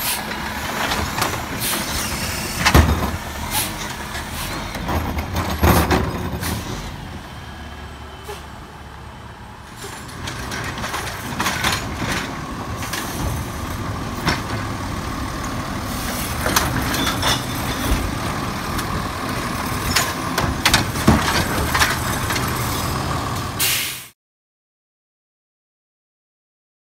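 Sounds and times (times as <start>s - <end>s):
diesel engine running: 0.0s - 24.0s
side-loader arm lifting carts: 0.0s - 24.1s
plastic carts banging: 0.8s - 3.7s, 4.8s - 6.8s, 9.9s - 13.5s, 19.7s - 22.7s.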